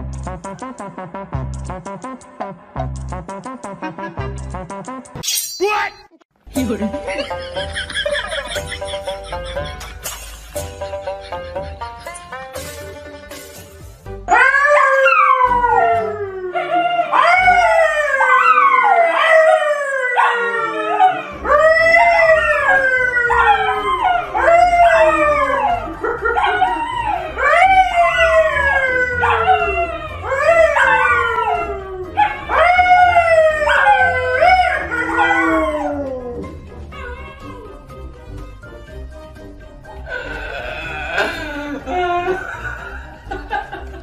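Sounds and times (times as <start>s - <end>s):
low background music: 0.0s - 5.2s, 6.4s - 44.0s
dogs howling: 14.3s - 37.9s
man howling: 20.1s - 37.8s, 40.1s - 43.0s.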